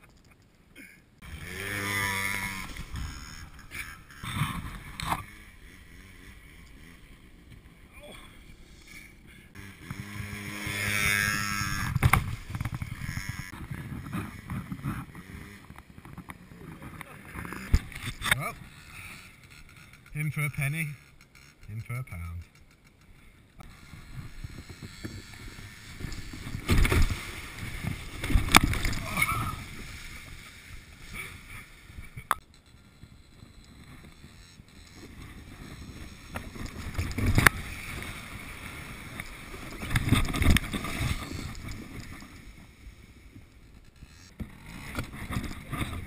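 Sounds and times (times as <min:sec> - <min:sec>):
plastic kayak scraping over snow: 0:01.2 - 0:21.0, 0:23.6 - 0:32.2, 0:32.9 - 0:42.8, 0:43.8 - 0:46.0.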